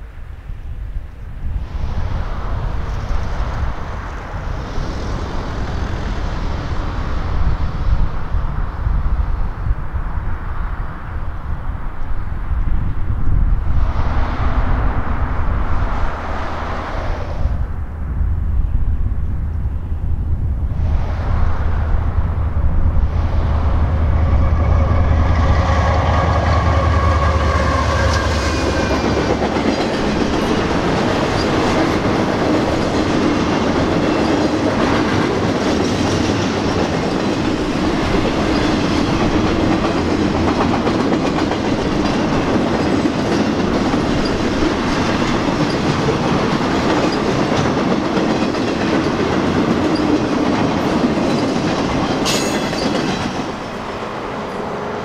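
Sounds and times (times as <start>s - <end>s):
diesel locomotive engine: 0.0s - 55.0s
steel wheels rolling on rails: 22.0s - 54.7s.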